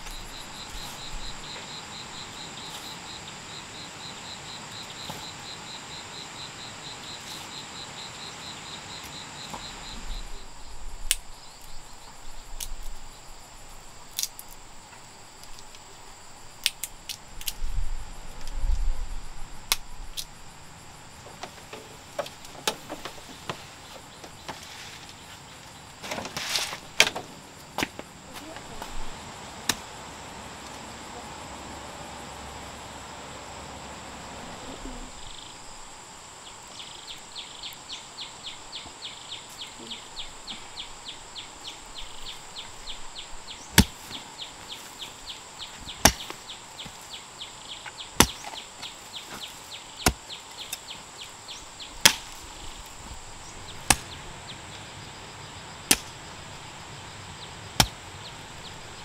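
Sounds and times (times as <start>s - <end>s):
faint high insect chirps: 0.0s - 59.0s
hoe chopping into soil: 43.7s - 44.2s, 45.9s - 47.0s, 47.9s - 50.8s, 52.0s - 52.5s, 53.8s - 54.2s, 55.9s - 56.2s, 57.8s - 58.0s.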